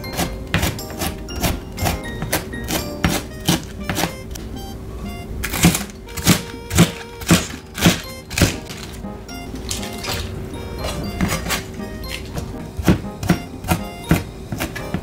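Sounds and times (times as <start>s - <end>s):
knife chopping on plastic board: 0.0s - 4.2s, 5.5s - 8.9s, 12.3s - 15.0s.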